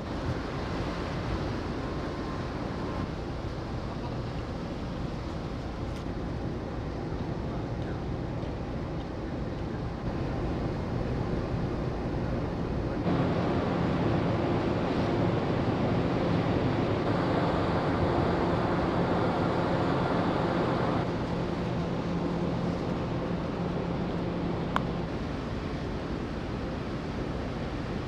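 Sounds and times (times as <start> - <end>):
ship engines droning: 0.0 - 28.0
wind and water rushing: 0.0 - 28.0.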